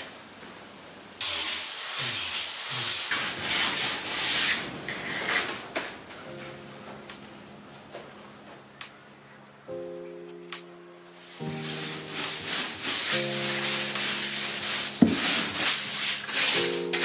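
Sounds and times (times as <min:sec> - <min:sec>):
sanding scraping strokes: 0:01.2 - 0:05.5, 0:11.2 - 0:17.0.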